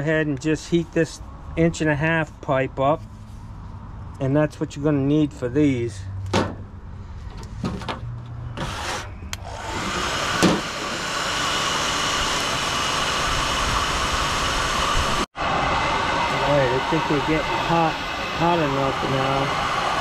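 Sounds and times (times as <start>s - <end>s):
heat gun blowing hot air: 8.7s - 15.3s, 17.0s - 20.0s.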